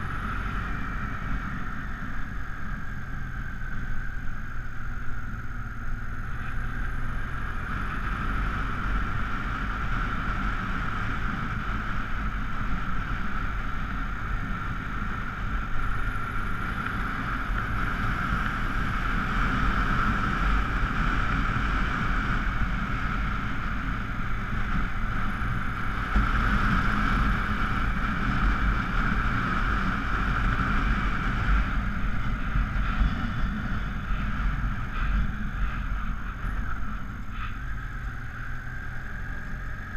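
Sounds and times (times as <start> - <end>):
motorcycle engine under load: 0.0 - 39.9
wind rushing over microphone: 0.0 - 39.9.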